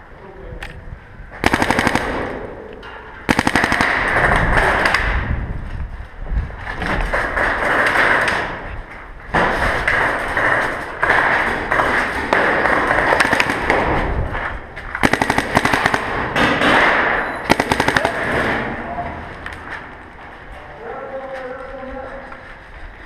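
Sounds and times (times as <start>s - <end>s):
paintball markers firing: 9.6s - 14.1s, 14.9s - 18.7s.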